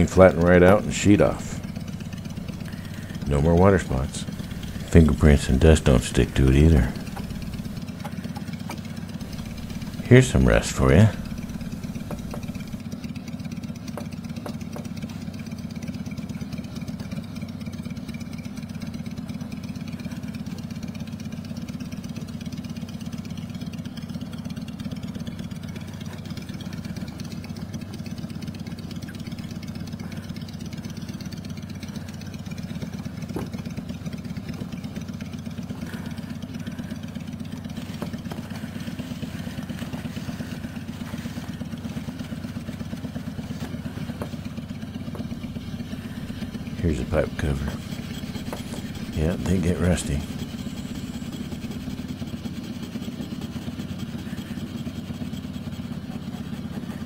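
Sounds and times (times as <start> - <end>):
steady low drone: 0.0 - 7.9, 9.1 - 12.8, 45.0 - 52.6.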